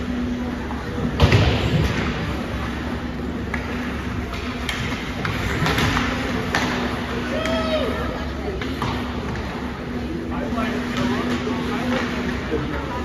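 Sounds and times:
skate and arena noise: 0.0s - 13.0s
steady low hum: 0.0s - 13.0s
clicks of sticks and puck: 3.4s - 7.6s, 8.6s - 9.6s.

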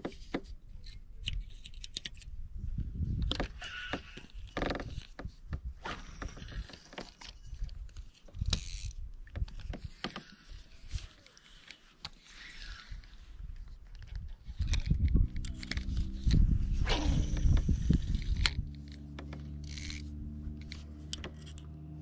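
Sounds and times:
fishing reel clicks: 8.4s - 9.0s, 17.1s - 19.0s, 19.6s - 21.6s
short rushing noises: 16.5s - 18.2s.

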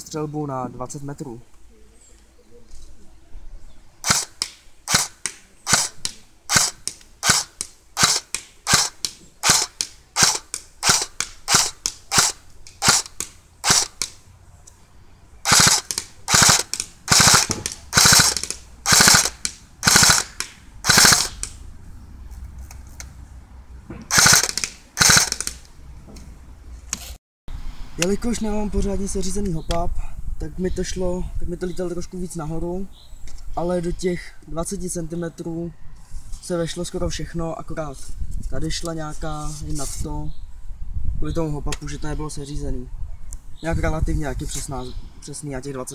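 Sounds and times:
airsoft gun firing: 4.0s - 14.2s, 15.4s - 21.6s, 24.1s - 25.6s.

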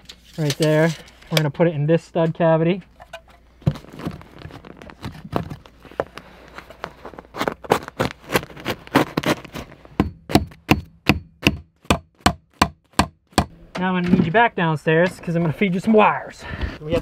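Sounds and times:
rustling: 3.0s - 9.9s.

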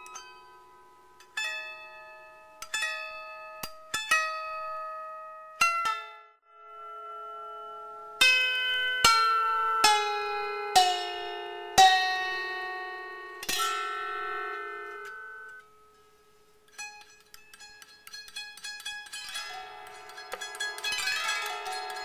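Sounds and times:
harp plucked notes: 16.7s - 22.0s.

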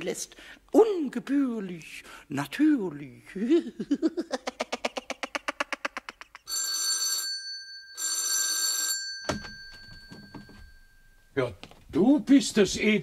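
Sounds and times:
electric doorbell ringing: 6.5s - 11.4s
clunk: 9.2s - 11.8s.

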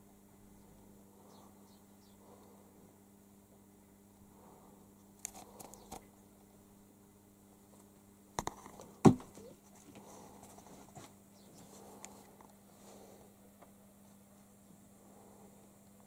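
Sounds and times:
kitten landing thumps: 9.0s - 9.4s.

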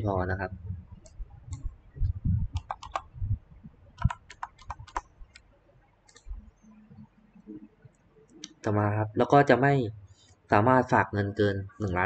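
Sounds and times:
computer keyboard typing: 2.5s - 3.2s, 3.9s - 5.4s.

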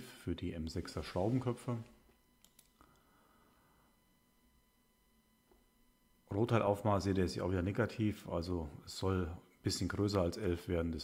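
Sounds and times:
faint computer mouse clicks: 2.4s - 3.1s.

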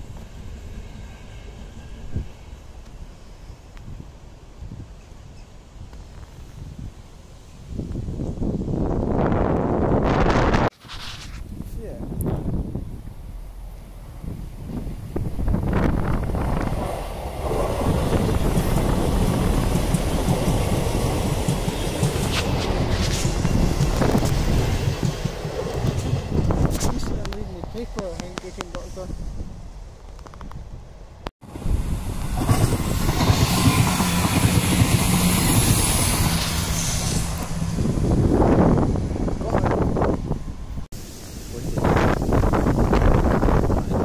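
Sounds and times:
diesel train passing: 0.0s - 10.6s, 12.3s - 44.0s
wheels clattering on rails: 16.2s - 28.9s.

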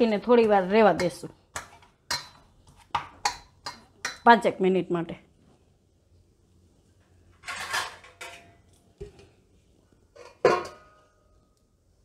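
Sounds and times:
metal plate scraping clatter: 7.4s - 8.4s.

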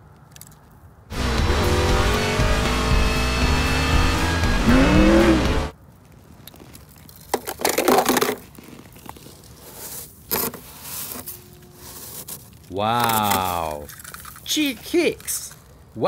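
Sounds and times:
music: 1.1s - 5.7s
race car engines: 1.1s - 5.7s.

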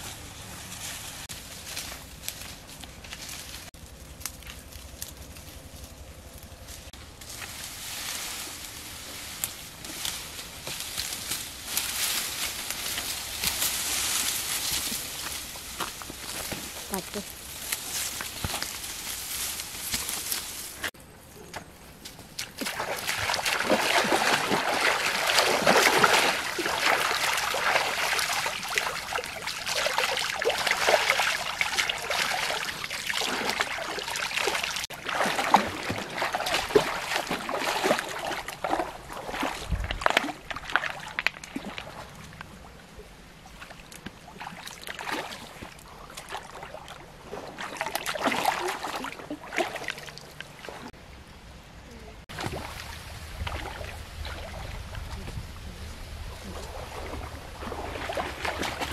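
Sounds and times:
people wading through water splashing: 22.3s - 50.9s, 52.3s - 58.9s.

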